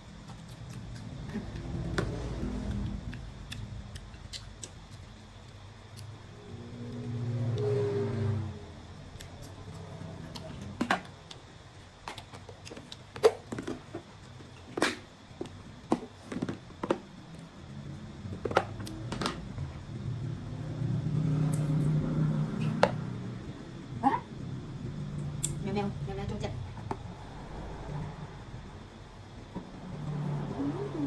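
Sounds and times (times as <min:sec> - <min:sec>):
plastic containers clicking and knocking: 0:12.0 - 0:17.1, 0:18.4 - 0:19.4
low hum: 0:17.1 - 0:31.0.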